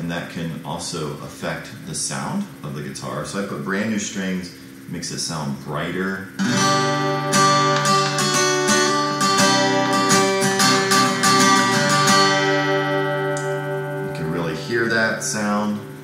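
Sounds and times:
acoustic guitar strumming: 6.3 - 16.0.

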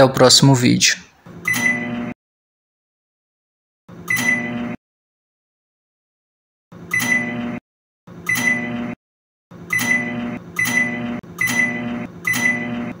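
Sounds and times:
microwave oven humming: 1.3 - 2.2, 3.9 - 4.8, 6.7 - 13.0.

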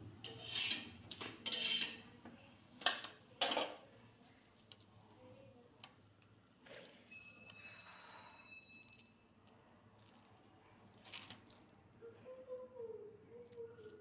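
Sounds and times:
flatbread scraping against metal: 0.2 - 2.1.

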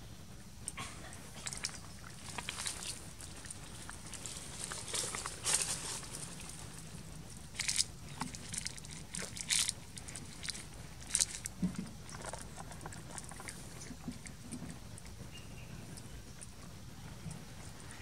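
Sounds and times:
leaves and gravel crackling: 1.2 - 14.0.

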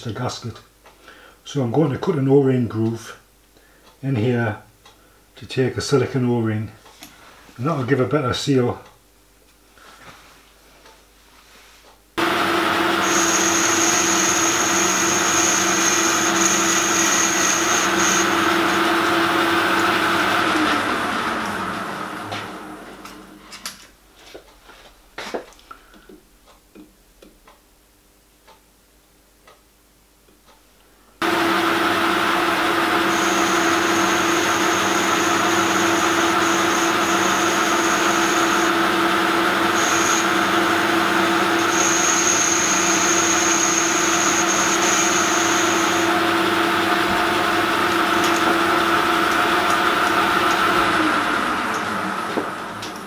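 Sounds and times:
metal lathe cutting with whine: 12.2 - 23.0, 31.2 - 53.0.

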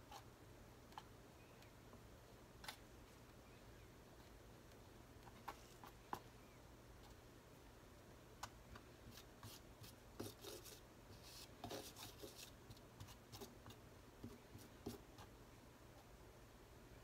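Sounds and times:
palette knife scraping paint: 9.1 - 15.3.

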